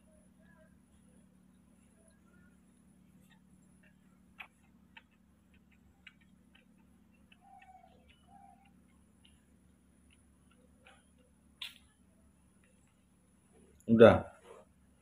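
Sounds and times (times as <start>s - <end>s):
baby monkey suckling clicks: 3.8s - 9.4s, 11.6s - 11.9s.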